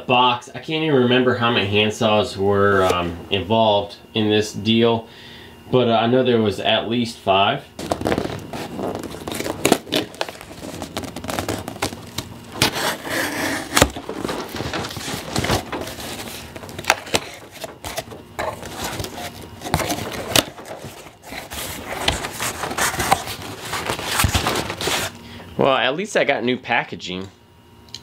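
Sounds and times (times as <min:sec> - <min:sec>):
box cutter slitting tape: 0:07.8 - 0:25.2
cardboard flaps scraping and knocking: 0:07.8 - 0:25.2
sharp clicks and rustles: 0:07.8 - 0:25.2
tape tearing: 0:07.8 - 0:25.2.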